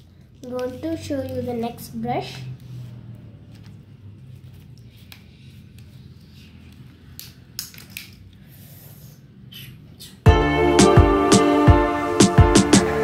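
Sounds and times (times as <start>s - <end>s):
paintbrushes clicking and rustling: 0.0s - 8.4s.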